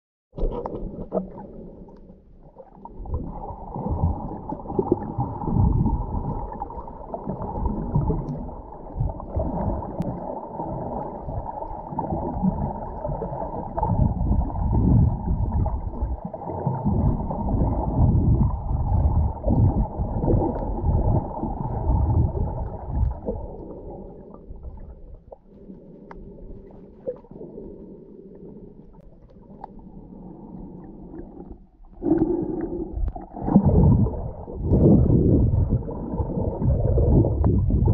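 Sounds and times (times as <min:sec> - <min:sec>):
water gurgling underwater: 0:00.4 - 0:37.9.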